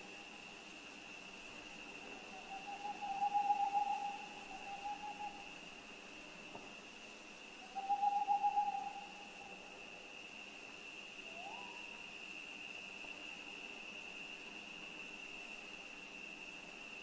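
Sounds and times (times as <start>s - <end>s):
owl hooting: 2.2s - 5.5s, 7.6s - 9.6s
steady high-pitched tone: 2.4s - 5.5s, 7.6s - 9.7s.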